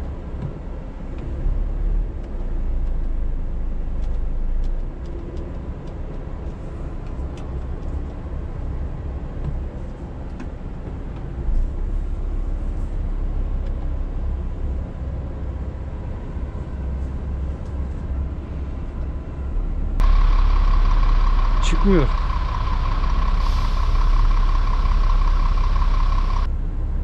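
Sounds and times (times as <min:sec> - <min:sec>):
diesel truck engine running: 0:06.3 - 0:27.0
reversing alarm beeping: 0:20.0 - 0:26.5.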